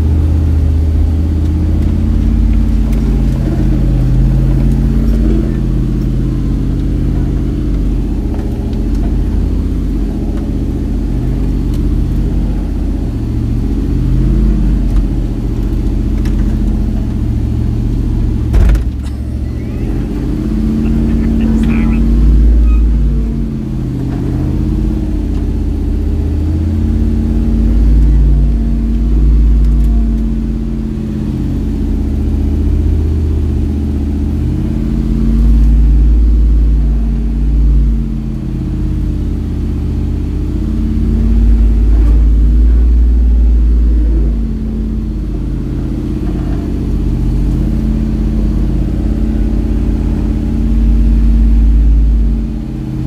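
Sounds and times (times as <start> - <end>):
car engine under load: 0.0 - 53.0.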